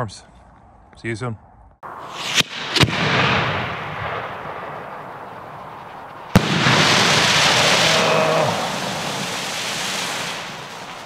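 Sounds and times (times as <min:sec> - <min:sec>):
firework crack: 0:01.9 - 0:11.0
loud rushing hiss: 0:01.9 - 0:11.0
firework mortar launch bang: 0:02.0 - 0:05.2, 0:06.3 - 0:11.0
firework hiss climbing: 0:02.0 - 0:11.0
firework shell bursting bang: 0:06.3 - 0:07.7.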